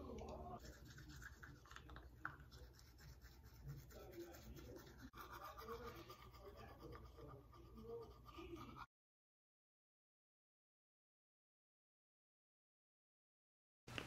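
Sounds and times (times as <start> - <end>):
toothbrush scrubbing teeth: 0.1 - 8.9.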